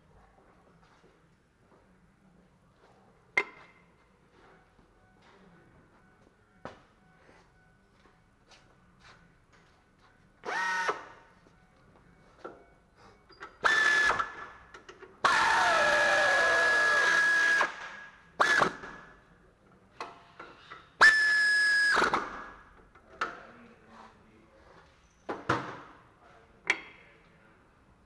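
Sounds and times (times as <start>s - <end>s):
power tool whirring: 10.4s - 11.1s, 13.6s - 14.4s, 15.2s - 19.0s.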